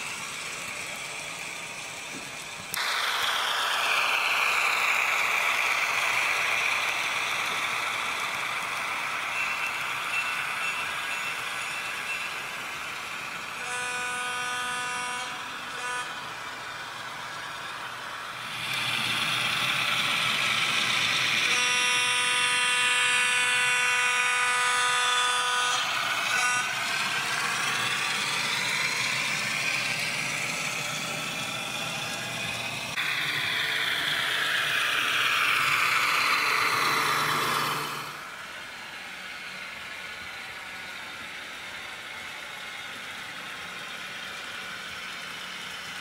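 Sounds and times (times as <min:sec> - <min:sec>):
diesel engine sound: 0:00.0 - 0:46.0
train horn: 0:13.5 - 0:16.4, 0:21.4 - 0:28.2.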